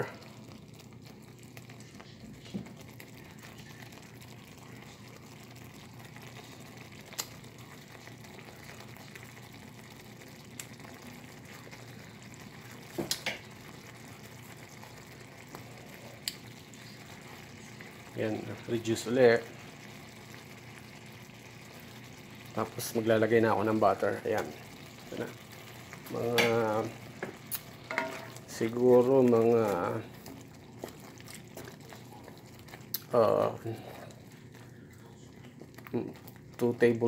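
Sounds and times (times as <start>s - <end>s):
sauce bubbling in a skillet: 0.0s - 37.0s.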